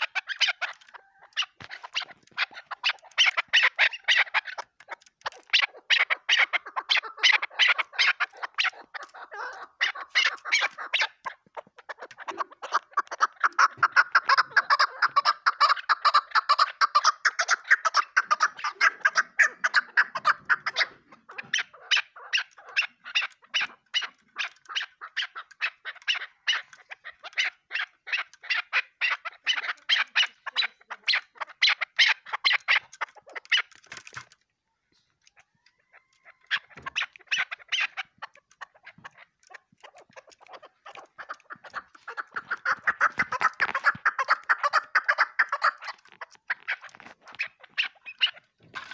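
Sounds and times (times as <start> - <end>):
partridge chucking calls: 0.0 - 48.9.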